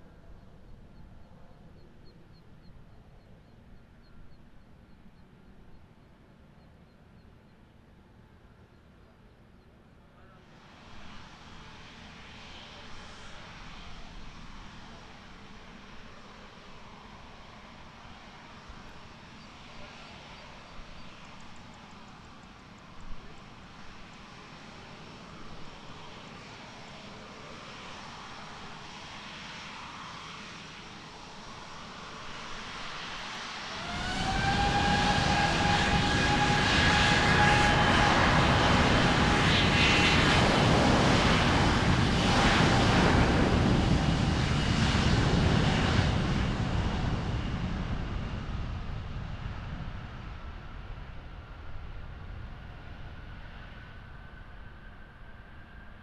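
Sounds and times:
jet engines spooling up: 0:30.4 - 0:50.5.

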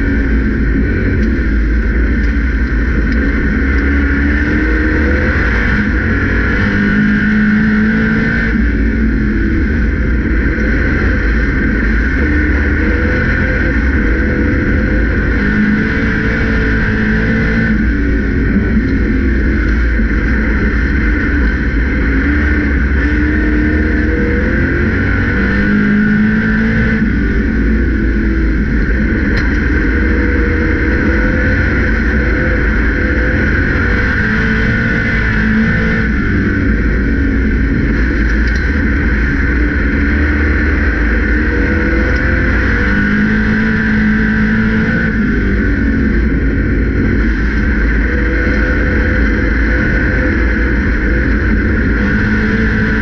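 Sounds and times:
race car engine: 0:00.0 - 0:53.0.

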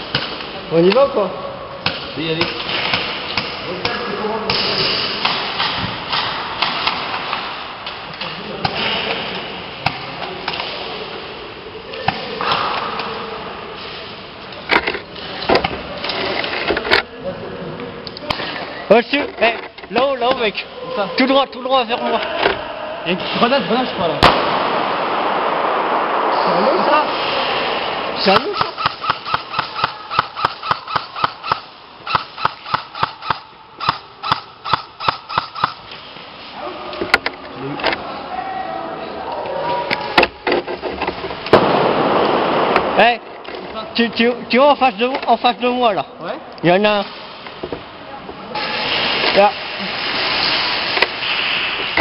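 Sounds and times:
rushing background noise: 0:00.0 - 0:52.0
airsoft shots clacking: 0:01.8 - 0:07.6, 0:24.2 - 0:26.2, 0:27.0 - 0:36.0, 0:41.5 - 0:43.1.

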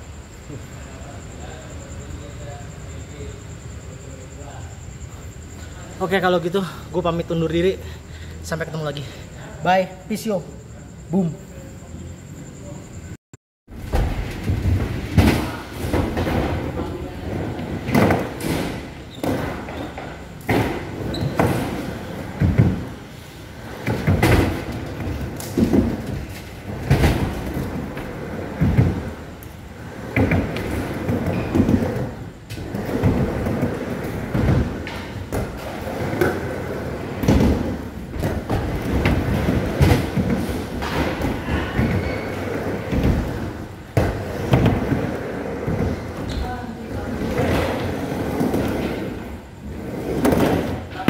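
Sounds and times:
skateboard wheels rumbling: 0:14.0 - 0:51.0.

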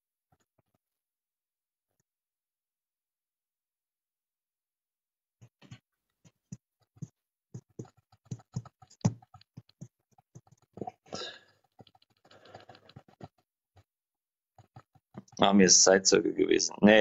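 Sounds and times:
breathy rush: 0:10.7 - 0:13.4.

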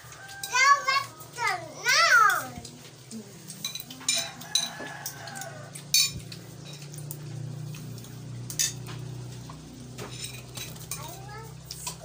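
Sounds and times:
glassware and dishes clinking: 0:03.5 - 0:07.0, 0:08.5 - 0:09.0, 0:10.0 - 0:12.0.

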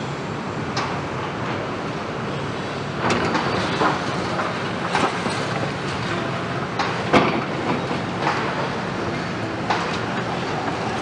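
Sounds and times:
excavators running: 0:00.0 - 0:11.0
clanks of steel and rubble: 0:03.0 - 0:11.0.

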